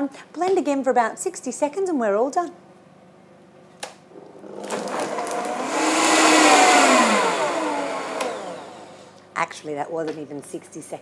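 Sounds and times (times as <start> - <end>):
blender motor whine: 4.2 - 9.2.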